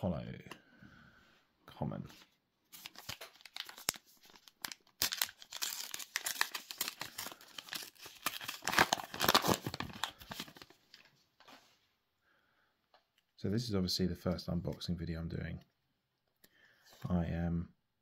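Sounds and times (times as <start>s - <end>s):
wrapper crinkling and tearing: 2.7s - 11.1s.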